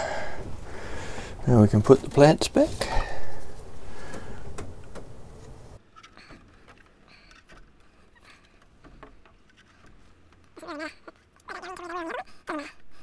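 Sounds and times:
plants rustling: 0:00.0 - 0:06.0.

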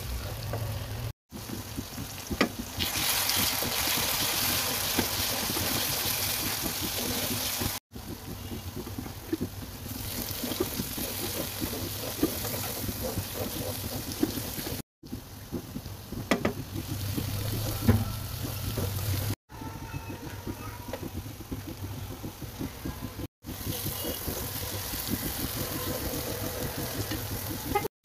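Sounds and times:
food sizzling in a pan: 0:01.3 - 0:07.8, 0:09.8 - 0:14.8, 0:23.5 - 0:27.9
spatula stirring and knocking pan: 0:01.3 - 0:27.9.

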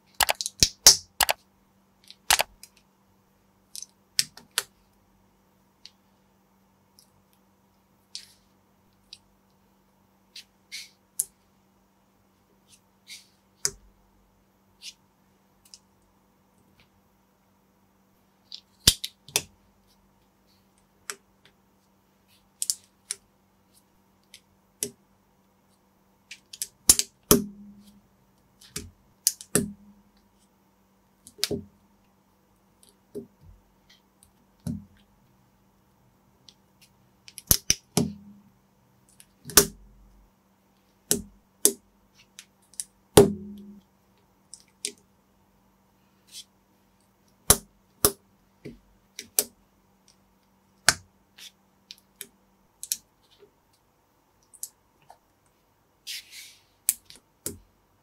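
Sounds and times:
faint low hum: 0:00.0 - 0:58.0.

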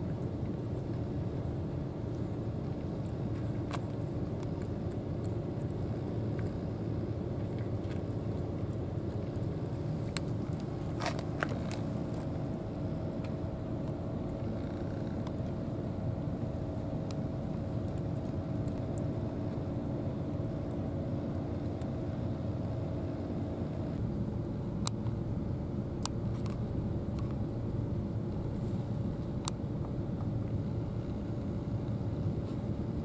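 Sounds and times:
low mechanical drone: 0:00.0 - 0:33.0
cat crunching dry kibble: 0:07.3 - 0:12.3.

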